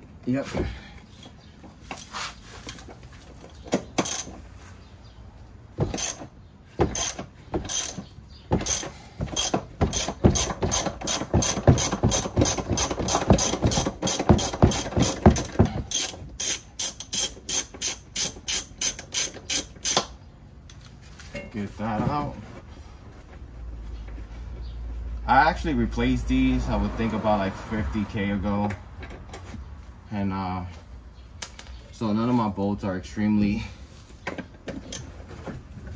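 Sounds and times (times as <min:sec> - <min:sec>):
ratchet wrench clicking: 0:04.0 - 0:04.3, 0:06.0 - 0:06.2, 0:06.9 - 0:08.0, 0:15.9 - 0:20.2.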